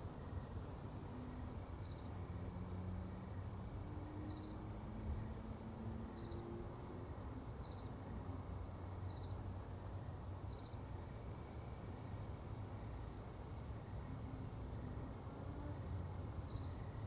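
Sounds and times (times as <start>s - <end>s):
insect chirping: 1.8s - 2.1s, 2.7s - 4.6s, 6.2s - 6.4s, 8.9s - 11.6s, 15.7s - 17.0s.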